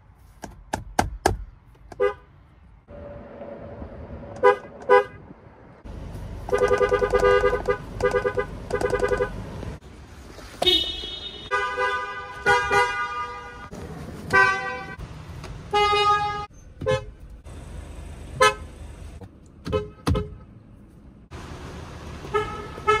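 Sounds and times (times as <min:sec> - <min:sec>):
car horns honking: 0:01.9 - 0:02.3, 0:04.4 - 0:05.3, 0:06.4 - 0:09.6, 0:10.6 - 0:15.0, 0:15.7 - 0:17.2, 0:18.3 - 0:18.8, 0:19.6 - 0:20.5, 0:22.2 - 0:23.0.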